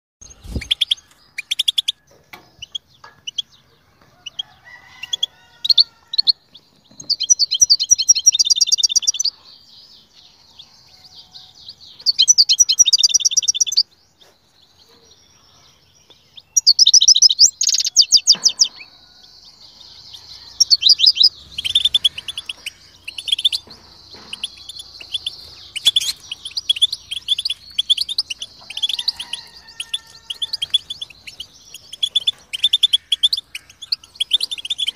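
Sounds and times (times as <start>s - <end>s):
bird chirps: 0.2s - 34.9s
goldfinch twittering trills: 20.1s - 34.9s.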